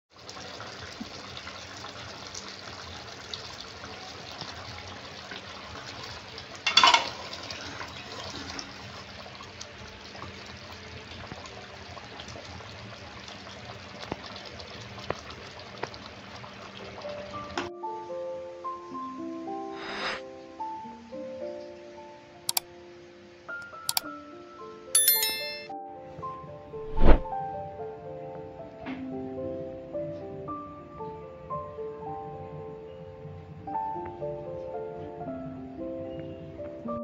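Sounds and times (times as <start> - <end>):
curry simmering and bubbling: 0.1 - 17.7.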